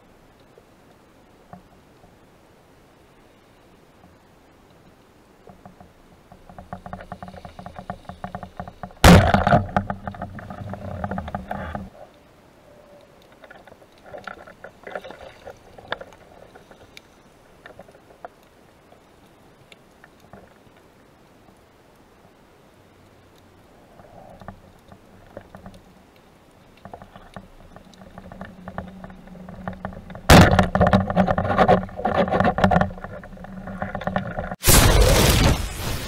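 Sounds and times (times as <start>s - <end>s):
underwater clicks and rattling: 5.4s - 12.2s, 13.0s - 20.9s, 24.0s - 34.6s.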